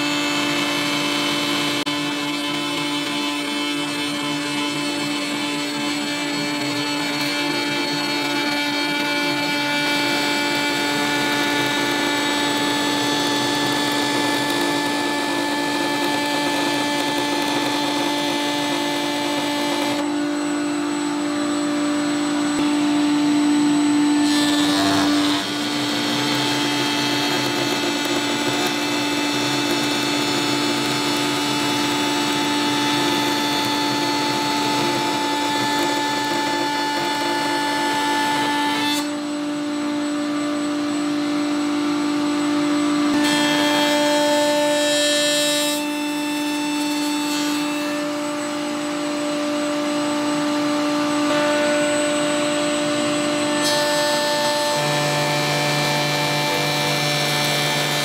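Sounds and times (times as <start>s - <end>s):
dust extraction running: 0.0s - 38.8s
router bit rasping through wood: 0.0s - 40.4s, 50.1s - 58.0s
router motor whine: 0.0s - 58.0s.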